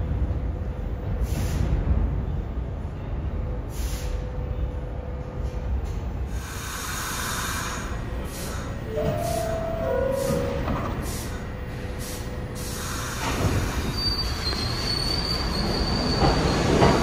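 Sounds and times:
subway train rumble: 0.0 - 17.0
air hiss: 6.3 - 14.0
high-pitched wheel squeals: 13.9 - 16.7.

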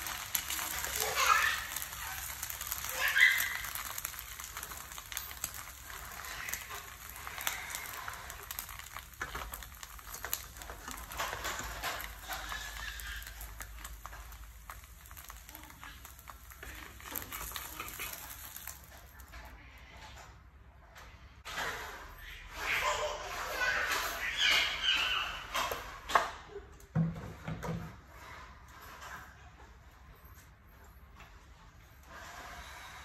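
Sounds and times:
egg sizzling in oil: 0.0 - 19.3.

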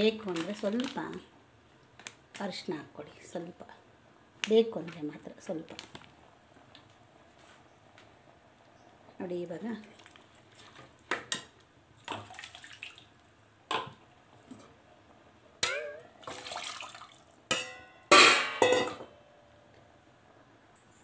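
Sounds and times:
water pouring into pot: 16.2 - 17.3
metal tumbler clinking on pot: 17.5 - 19.1.

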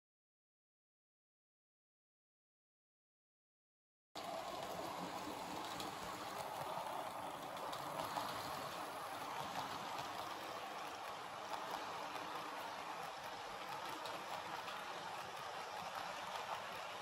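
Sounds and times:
model train rumbling on track: 4.2 - 17.0.

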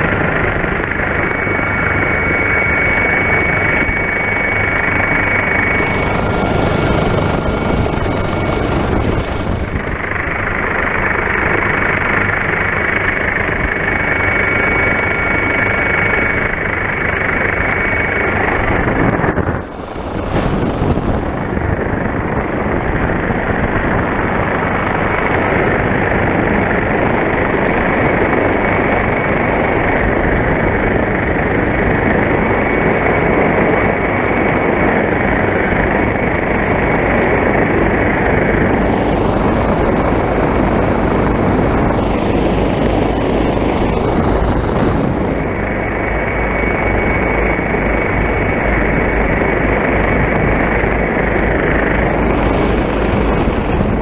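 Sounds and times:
helicopter rotor and engine din: 0.0 - 54.0
high hiss: 52.1 - 54.0.

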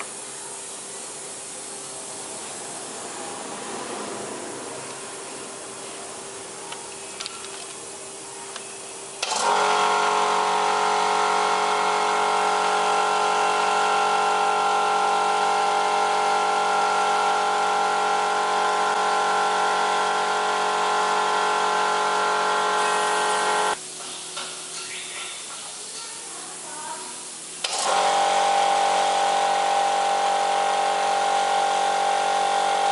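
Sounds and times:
electric motor humming: 9.2 - 23.8, 27.6 - 32.9.

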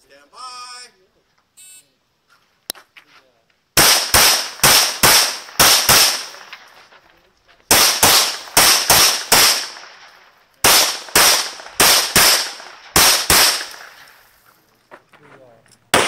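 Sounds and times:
pistol shots in rapid strings: 3.8 - 6.4, 10.6 - 13.8.

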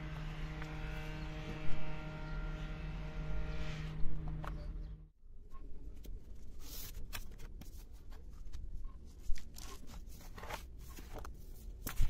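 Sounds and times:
paper rustling and crinkling: 5.9 - 12.0.

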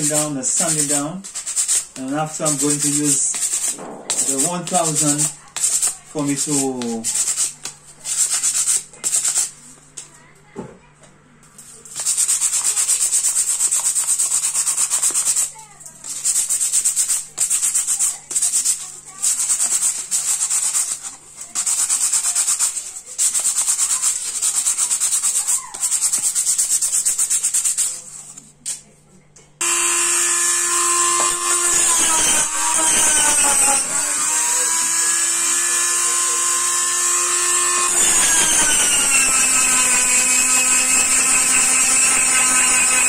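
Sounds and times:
sandpaper rasping on coconut shell: 0.0 - 9.6, 11.9 - 28.4, 29.6 - 43.0
rotary tool whine: 29.6 - 43.0.

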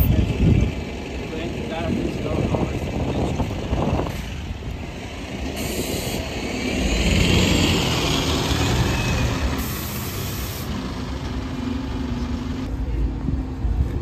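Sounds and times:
bus engine driving past: 0.0 - 14.0.

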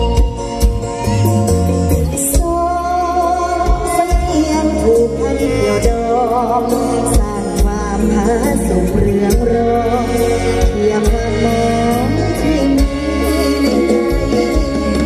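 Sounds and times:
drum beats: 0.0 - 3.0
live band music over loudspeakers: 0.0 - 15.0
sustained bass: 0.0 - 15.0.

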